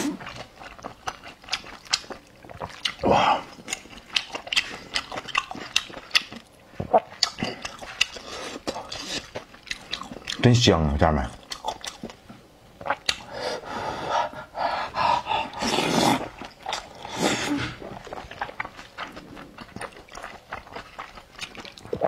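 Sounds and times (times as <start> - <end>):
chewing: 0.0 - 10.5, 11.4 - 13.3, 15.2 - 22.0
wet mouth clicks: 12.8 - 13.3
slurping noodles: 15.2 - 20.4.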